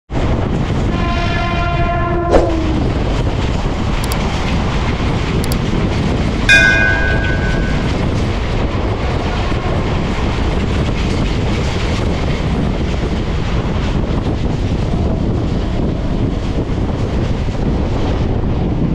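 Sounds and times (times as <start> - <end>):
train wheels rumbling on rails: 0.1 - 18.9
short high ringing tone: 6.5 - 8.3.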